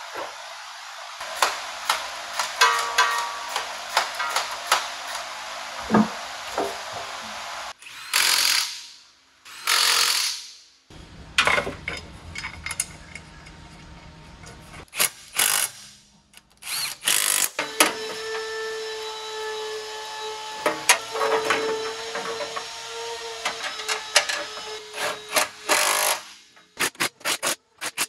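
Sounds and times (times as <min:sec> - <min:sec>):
handheld power tool: 0:01.2 - 0:10.6, 0:14.8 - 0:28.0
tools knocking on metal: 0:02.6 - 0:04.5.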